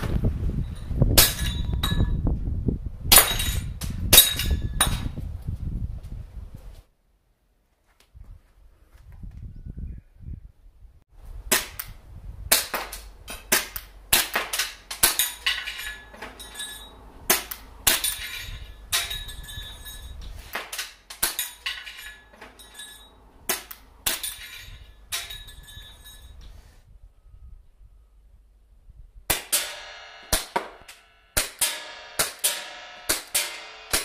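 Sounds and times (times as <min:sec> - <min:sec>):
metallic ring of steel targets: 0:00.7 - 0:02.2, 0:03.1 - 0:05.0, 0:12.5 - 0:26.4, 0:29.3 - 0:34.0
airsoft pistol shots: 0:29.3 - 0:34.0.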